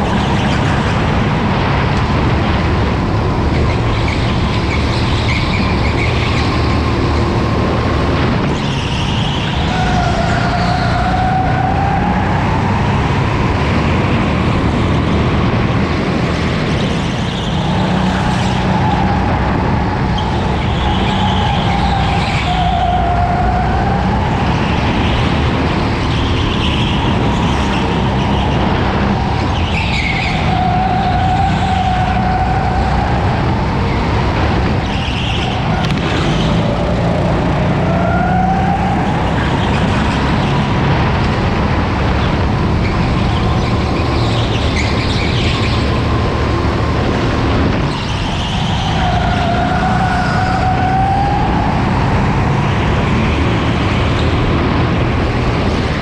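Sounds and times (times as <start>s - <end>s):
go-kart motor whine: 0.0s - 56.0s
tyres rumbling on track: 0.0s - 56.0s.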